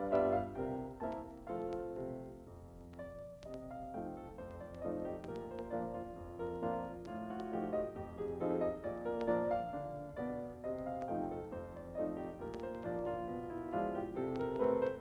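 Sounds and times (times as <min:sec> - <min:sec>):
piano music with quick notes: 0:00.0 - 0:15.0.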